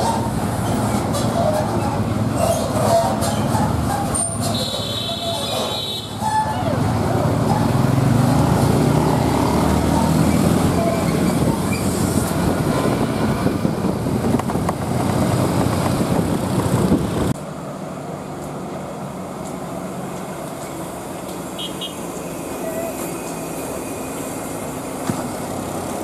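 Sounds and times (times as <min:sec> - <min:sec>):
distant traffic: 0:00.0 - 0:26.0
heavy truck engines and road noise: 0:00.0 - 0:26.0
wind: 0:00.0 - 0:26.0
motorcycle engine: 0:05.8 - 0:17.3.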